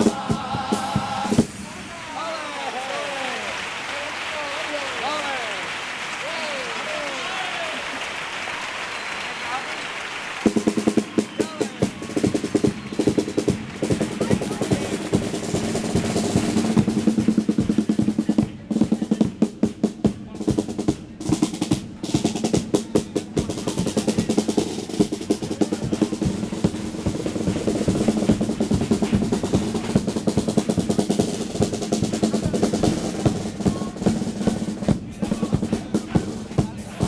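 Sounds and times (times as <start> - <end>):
snare drum rolls: 0.0 - 37.0
pitched musical backing: 10.4 - 37.0.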